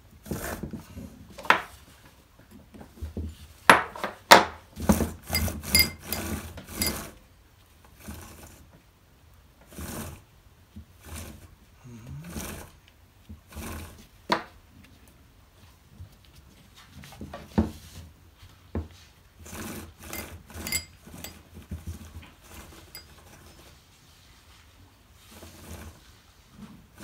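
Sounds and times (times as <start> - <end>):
metal scraping: 5.2 - 7.2, 19.4 - 21.5, 22.3 - 23.8
chainsaw chain clinking: 5.3 - 7.0, 20.1 - 21.4.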